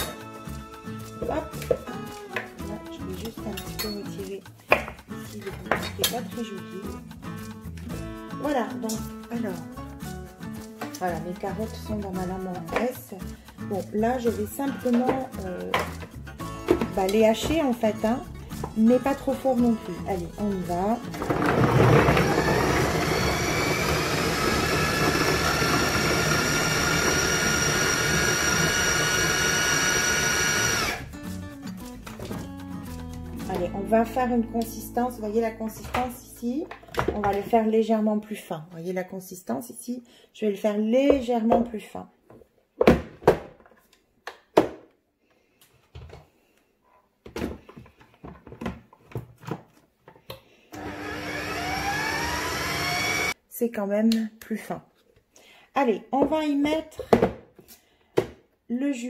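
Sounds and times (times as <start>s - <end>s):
food processor motor whine: 21.2s - 31.1s, 50.7s - 53.4s.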